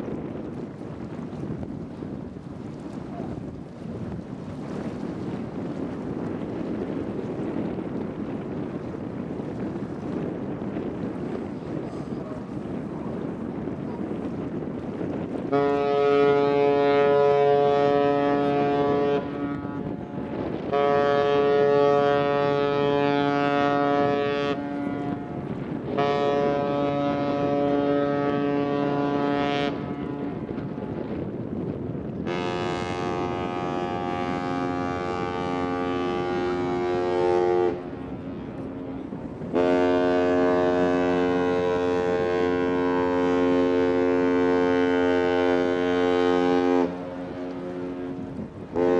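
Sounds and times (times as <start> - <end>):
deep ship horn blasts: 0.0 - 48.9
wind rumble on microphone: 0.0 - 48.9
higher-pitched ship horn: 15.5 - 30.4, 32.2 - 48.9.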